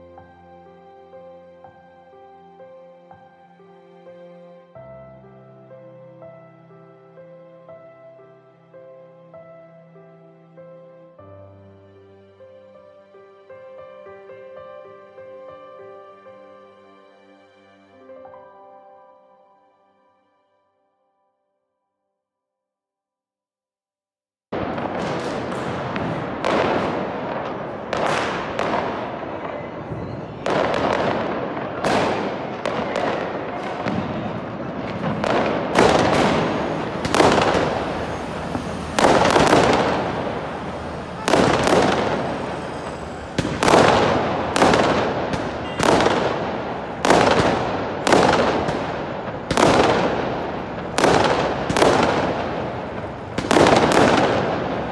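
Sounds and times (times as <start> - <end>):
fireworks bangs: 24.5 - 54.9.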